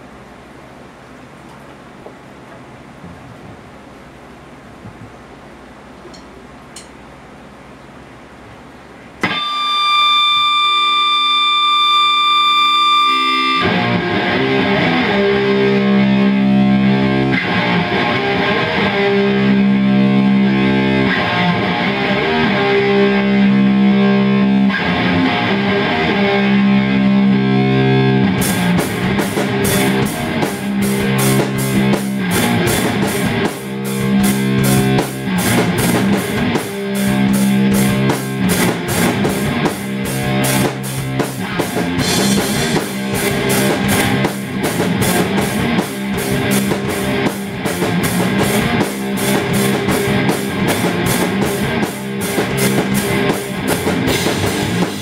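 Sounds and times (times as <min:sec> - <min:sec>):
distorted electric guitar chords: 0:09.2 - 0:55.0.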